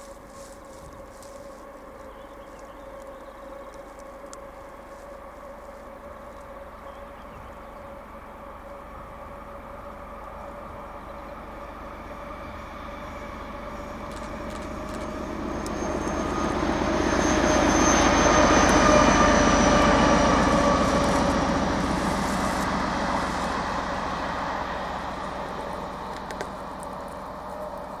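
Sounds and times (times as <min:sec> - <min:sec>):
coaches rumbling on rails: 0:00.0 - 0:28.0
diesel locomotive engine: 0:00.0 - 0:28.0
high whine: 0:00.0 - 0:28.0.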